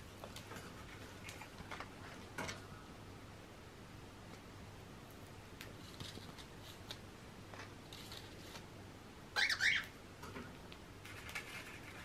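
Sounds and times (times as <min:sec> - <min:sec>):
light clicks and paper rustles: 0:00.2 - 0:02.6, 0:05.6 - 0:08.7, 0:10.2 - 0:12.0
bird chirp: 0:09.4 - 0:10.0.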